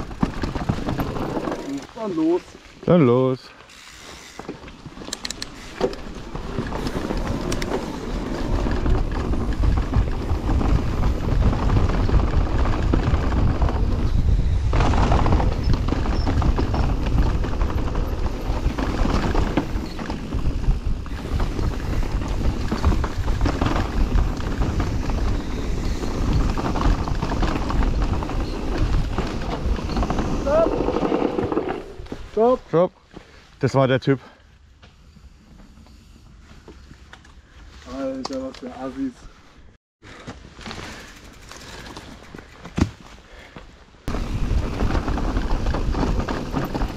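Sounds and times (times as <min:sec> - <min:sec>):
mountain bike rattling downhill: 0:00.0 - 0:32.6, 0:40.1 - 0:46.9
wind rumbling on microphone: 0:04.8 - 0:32.4, 0:44.1 - 0:46.9.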